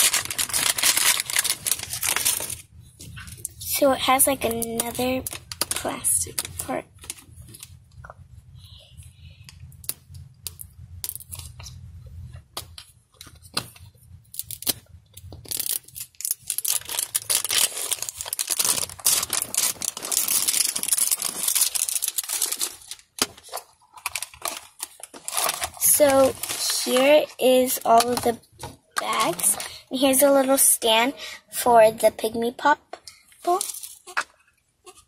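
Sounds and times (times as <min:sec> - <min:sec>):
plastic wrapping crinkling and tearing: 0:00.0 - 0:07.8, 0:13.2 - 0:28.4, 0:29.0 - 0:29.8, 0:33.4 - 0:34.2.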